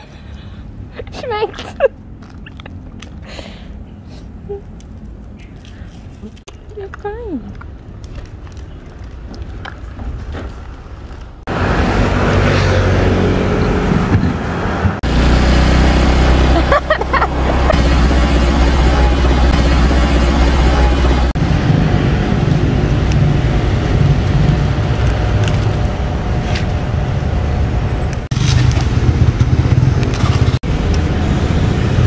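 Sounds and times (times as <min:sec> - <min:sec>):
traffic engines droning: 0:00.0 - 0:32.0.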